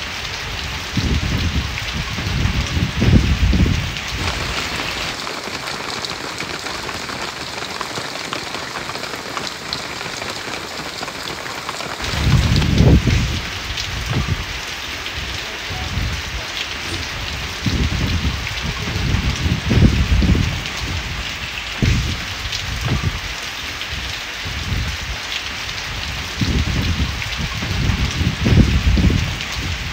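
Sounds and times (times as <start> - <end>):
steady rain falling: 0.0 - 29.9
low rumbles: 0.9 - 5.2, 12.0 - 23.4.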